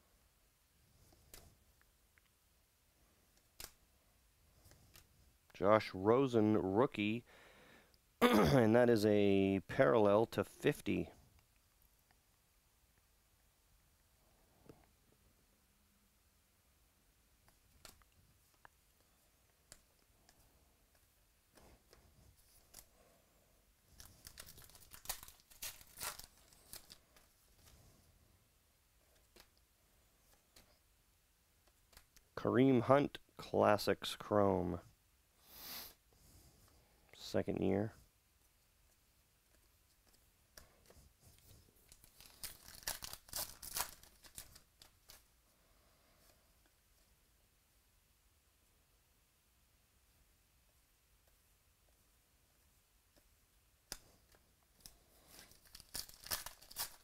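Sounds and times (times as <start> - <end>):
wrapper tearing and crinkling: 24.0 - 27.3, 41.9 - 45.3, 55.2 - 57.0
cards clicking and rustling: 24.0 - 27.8, 29.1 - 29.7, 31.6 - 32.3, 39.5 - 45.3, 53.9 - 57.0.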